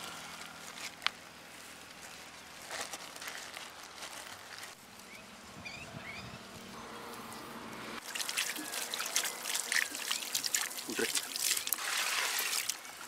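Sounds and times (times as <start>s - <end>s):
bird chirping: 5.0s - 7.6s
water pouring onto soil: 8.0s - 13.0s.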